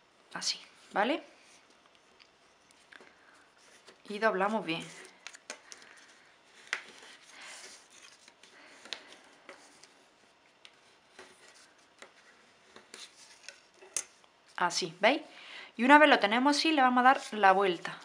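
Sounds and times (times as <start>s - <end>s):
paper rustling: 4.8s - 13.9s.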